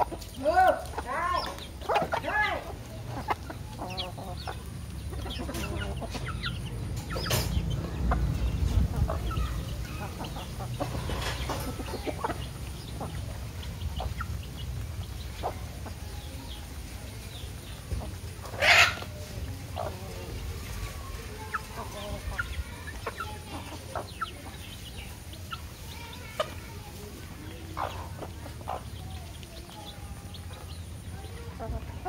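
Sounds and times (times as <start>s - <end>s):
chickens clucking: 0.0s - 32.0s
loud chicken call: 18.5s - 19.1s.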